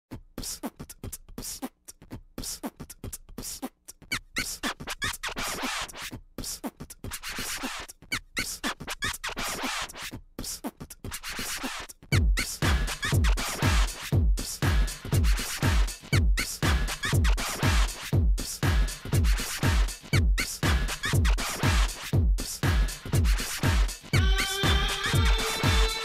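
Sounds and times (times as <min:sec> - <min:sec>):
beatbox-style percussive clicks: 0:00.1 - 0:26.0
record scratching: 0:04.2 - 0:06.1, 0:08.4 - 0:10.1
deep booming kick drum beat: 0:12.1 - 0:26.0.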